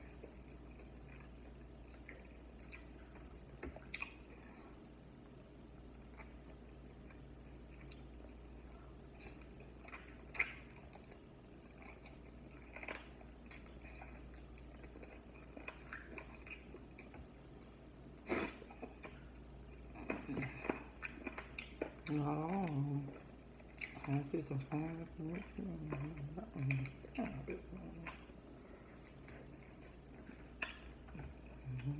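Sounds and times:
person chewing: 0:00.0 - 0:04.8, 0:05.8 - 0:31.9
person humming: 0:31.2 - 0:31.9.

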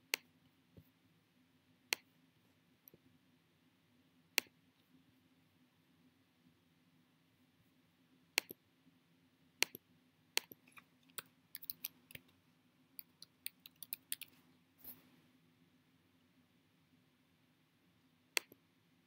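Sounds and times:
sharp clicks: 0:08.4 - 0:08.6, 0:10.4 - 0:12.3, 0:13.0 - 0:14.4
computer keyboard typing: 0:10.4 - 0:12.3, 0:13.0 - 0:14.4.

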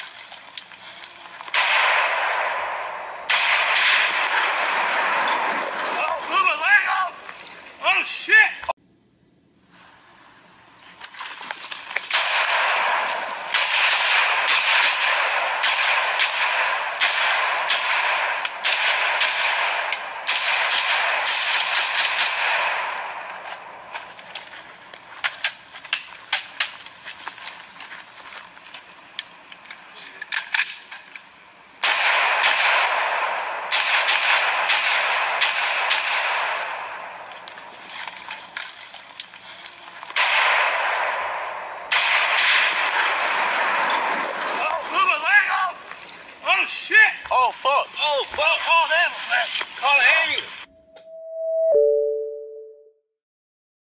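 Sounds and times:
rifle shots: 0:01.5 - 0:06.0, 0:12.1 - 0:24.0, 0:31.8 - 0:37.5, 0:40.1 - 0:44.6
steady hiss: 0:09.4 - 0:18.2, 0:36.3 - 0:50.7.

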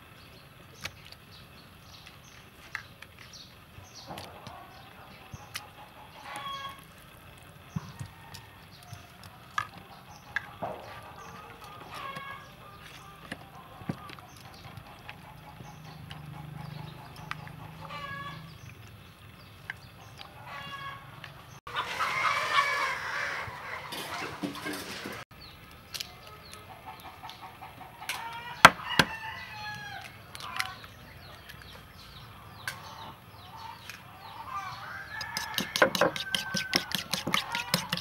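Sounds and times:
chickens clucking: 0:03.9 - 0:07.0, 0:07.7 - 0:25.2, 0:26.0 - 0:38.0
rooster crowing: 0:21.7 - 0:24.4, 0:28.1 - 0:30.2, 0:34.4 - 0:38.0.

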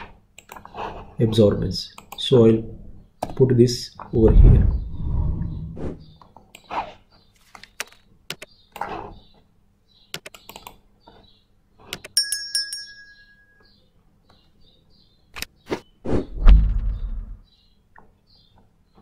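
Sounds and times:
keyboard keys clicking: 0:10.1 - 0:10.8.

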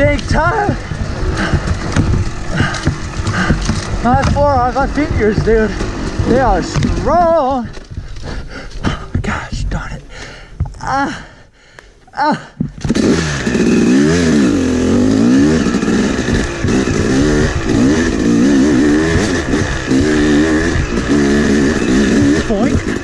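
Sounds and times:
dirt bike engine revving: 0:00.0 - 0:07.8, 0:12.8 - 0:23.0.

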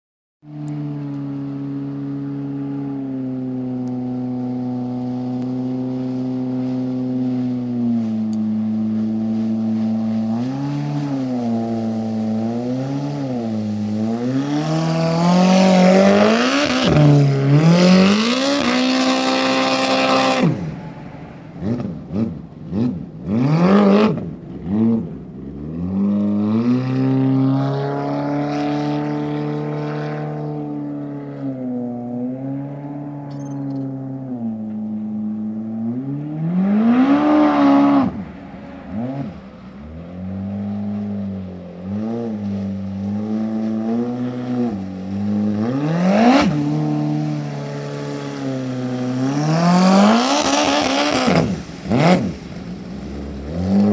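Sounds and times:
personal watercraft engine revving: 0:00.4 - 0:53.9
hiss of spray: 0:46.5 - 0:53.5.

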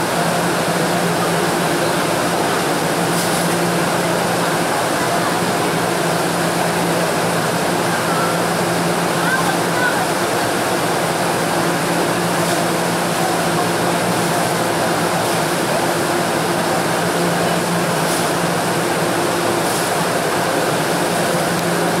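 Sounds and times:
electric train humming: 0:00.0 - 0:22.0.

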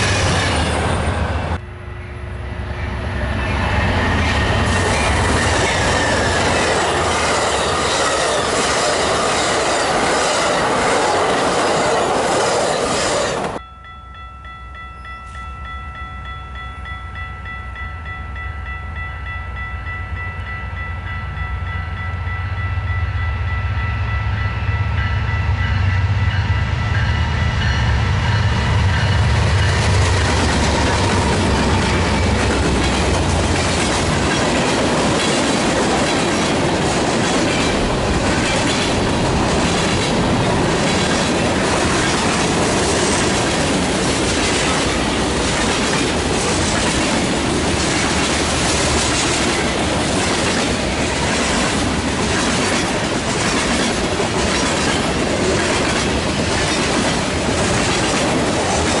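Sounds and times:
diesel locomotive engine rumble: 0:00.0 - 0:13.6, 0:14.7 - 0:59.0
wheels rolling on rails: 0:29.4 - 0:59.0
clickety-clack over rail joints: 0:29.6 - 0:59.0.

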